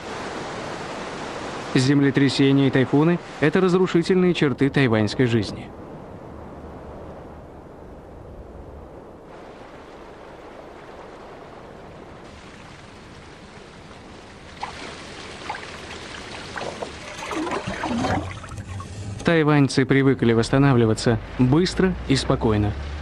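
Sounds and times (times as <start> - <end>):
floodwater rushing: 0.0 - 4.2, 9.3 - 23.0
short scrapes and splashes: 14.5 - 19.3.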